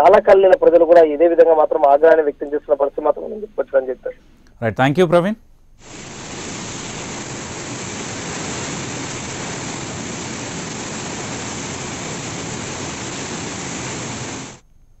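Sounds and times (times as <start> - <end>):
water rushing: 5.8 - 14.6.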